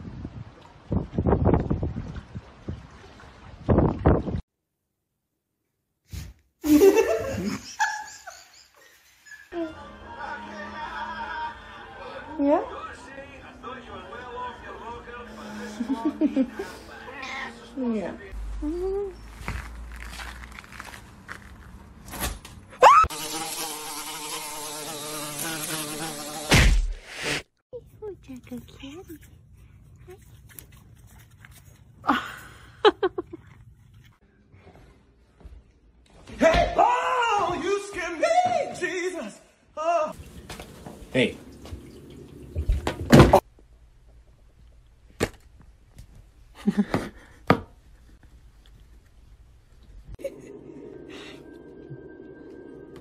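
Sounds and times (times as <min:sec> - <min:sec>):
scuffle of small noises: 0:15.7 - 0:22.0, 0:27.7 - 0:36.4
toy drone buzzing: 0:23.1 - 0:26.5.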